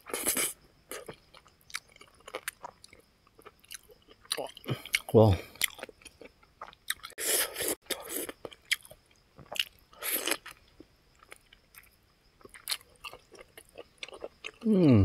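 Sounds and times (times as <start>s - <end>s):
person chewing with wet mouth clicks: 0.2s - 7.2s.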